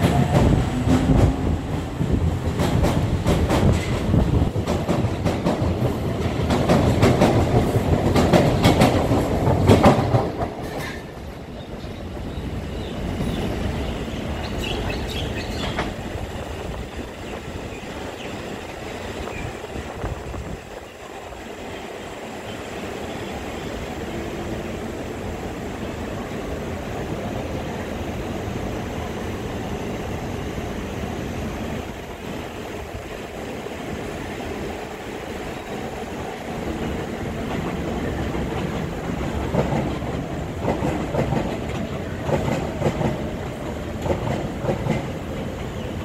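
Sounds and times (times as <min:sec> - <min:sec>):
train wheels clicking over rail joints: 0:00.0 - 0:13.6, 0:35.9 - 0:46.0
distant train rumble: 0:00.0 - 0:46.0.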